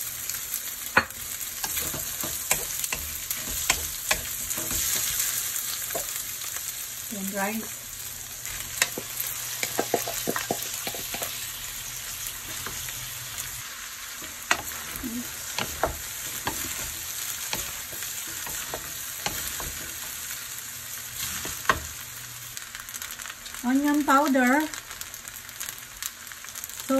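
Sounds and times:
rice sizzling in a metal pan: 0.0 - 26.9
spatula tapping a pan: 0.9 - 5.2, 5.8 - 6.2, 8.7 - 11.3, 14.2 - 20.1, 21.4 - 22.0
wooden spatula scraping a pan: 1.0 - 6.2.

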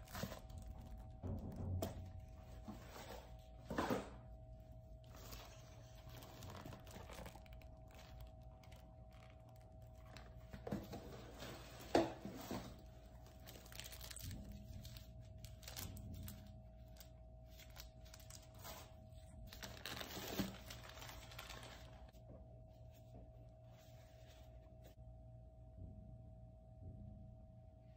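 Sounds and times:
plastic bags crinkling: 0.0 - 3.0, 5.0 - 22.1.

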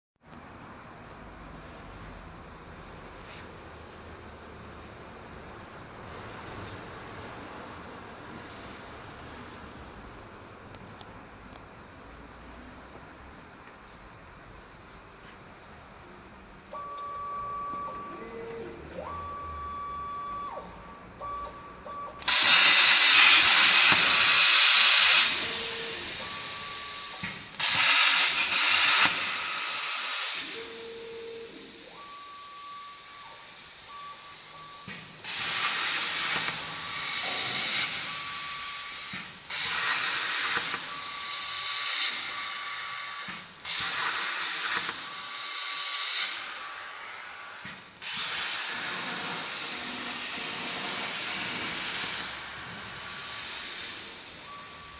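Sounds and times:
plasma torch cutting hiss: 22.2 - 54.9.

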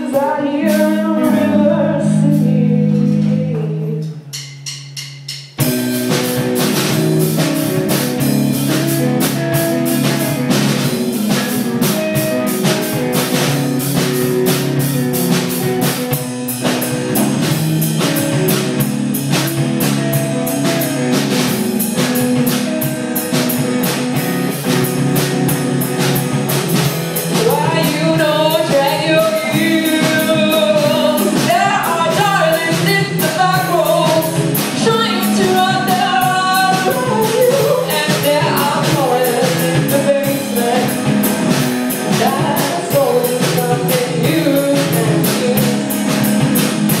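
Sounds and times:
electric guitar chords: 0.0 - 4.3, 5.6 - 47.0
person singing: 0.0 - 4.3, 27.3 - 46.4
drum kit hits: 0.7 - 47.0.

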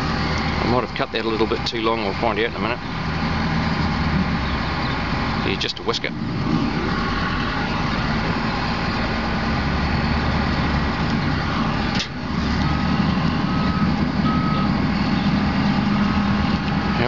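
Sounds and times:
heavy vehicle engine idling: 0.0 - 17.0
reversing alarm beeping: 10.6 - 16.5.

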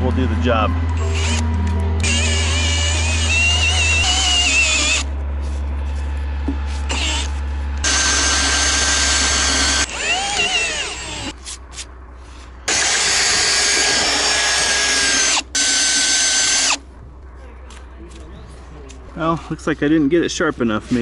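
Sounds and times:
cordless drill boring into wood: 1.0 - 1.4, 2.0 - 5.1, 6.9 - 11.3, 12.7 - 16.8.

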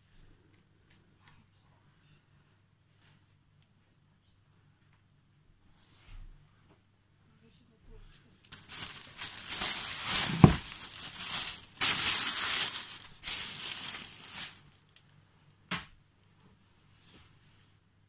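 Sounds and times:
plastic bag rustling: 8.5 - 15.1.

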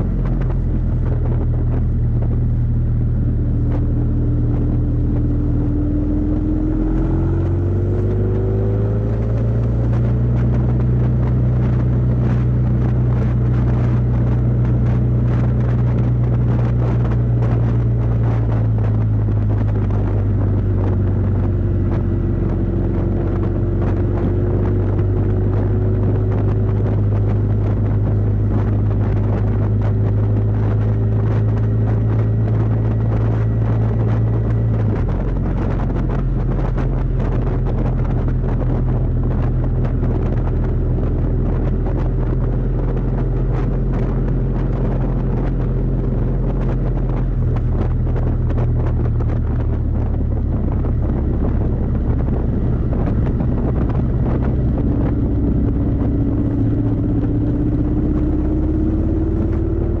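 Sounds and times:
motorcycle engine cruising: 0.0 - 60.0
wind noise on microphone: 0.0 - 60.0
rising tone: 1.2 - 10.5.

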